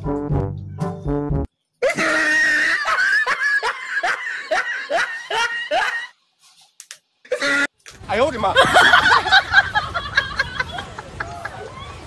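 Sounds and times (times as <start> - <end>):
person laughing: 1.8 - 6.1, 8.6 - 11.8.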